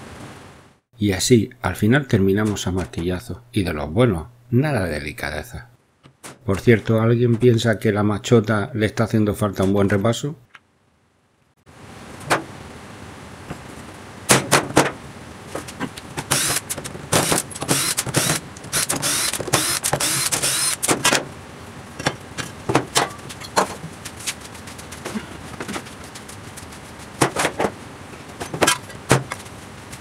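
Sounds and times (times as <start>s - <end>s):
knocks and clicks of tools and wood: 6.0s - 7.6s, 15.6s - 21.3s, 28.4s - 29.5s
cordless drill spinning: 16.3s - 20.9s.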